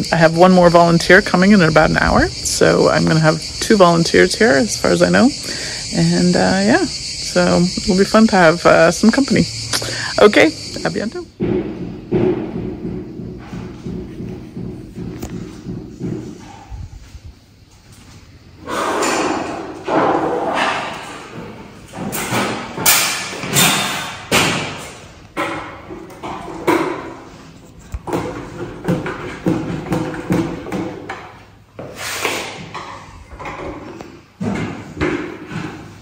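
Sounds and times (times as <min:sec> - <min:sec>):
knocks and thumps echoing: 0:09.1 - 0:16.8, 0:18.9 - 0:31.4, 0:32.6 - 0:36.0.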